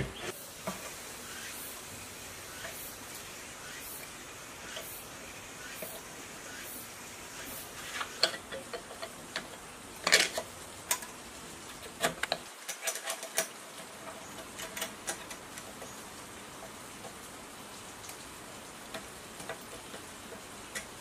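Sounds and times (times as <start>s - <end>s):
small engine parts clicking together: 8.0s - 17.2s, 18.9s - 21.0s.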